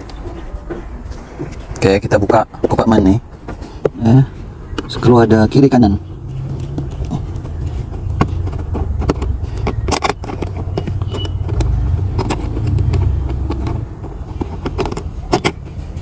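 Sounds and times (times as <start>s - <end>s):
hand tool and plastic trim clicks: 6.5s - 15.7s.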